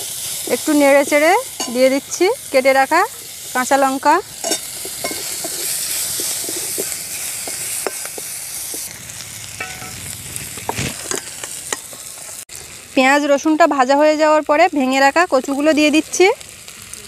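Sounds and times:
onions sizzling in oil: 0.0s - 17.0s
metal spatula scraping pan: 3.3s - 8.8s, 9.6s - 12.4s.

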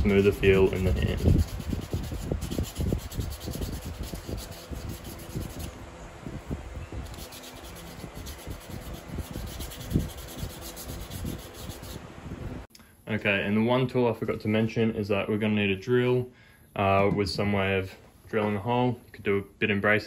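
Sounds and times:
sanding wood with sandpaper: 0.0s - 5.8s, 7.0s - 12.0s.

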